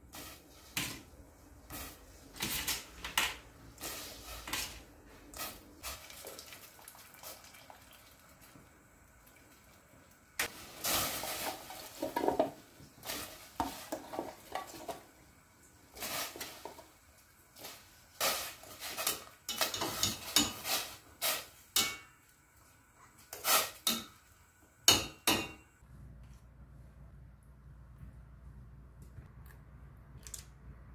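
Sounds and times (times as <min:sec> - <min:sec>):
metal tongs clanking against saucepan: 0:21.8 - 0:22.1.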